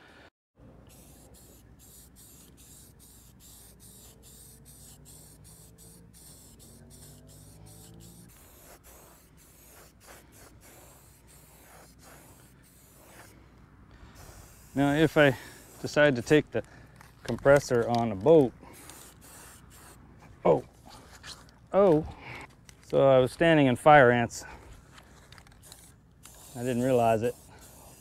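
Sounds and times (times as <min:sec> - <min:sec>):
spray paint can hissing: 0:00.8 - 0:13.3, 0:14.1 - 0:20.0, 0:25.4 - 0:28.0.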